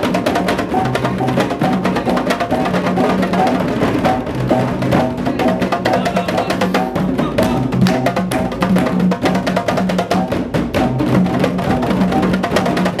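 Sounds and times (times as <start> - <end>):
hand drums in fast rhythm: 0.0 - 13.0.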